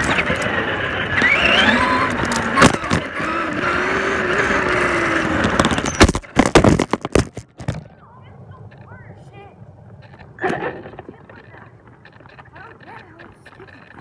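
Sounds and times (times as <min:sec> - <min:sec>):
rc truck motor whine: 0:00.0 - 0:06.1
sharp knocks and clatter: 0:05.4 - 0:07.9.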